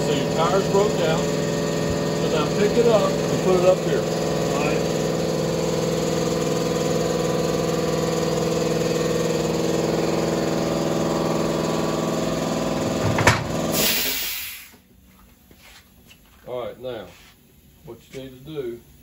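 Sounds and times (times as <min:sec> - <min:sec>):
air compressor droning: 0:00.0 - 0:16.1
compressor knock: 0:09.7 - 0:14.8
air hiss: 0:13.6 - 0:14.8.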